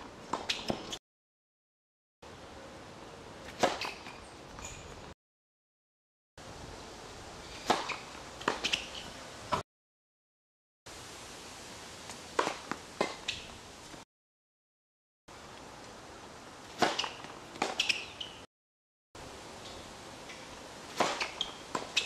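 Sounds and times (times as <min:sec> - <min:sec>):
racquets hitting tennis ball: 0:07.6 - 0:09.1, 0:16.7 - 0:18.4, 0:20.9 - 0:22.0.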